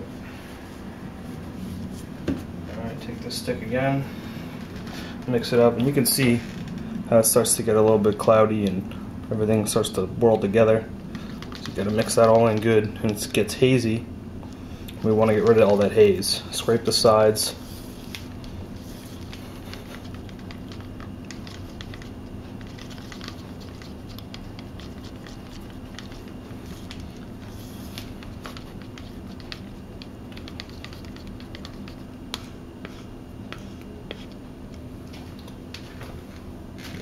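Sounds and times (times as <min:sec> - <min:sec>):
stir stick scraping plastic cup: 0:11.1 - 0:13.4, 0:18.8 - 0:34.4.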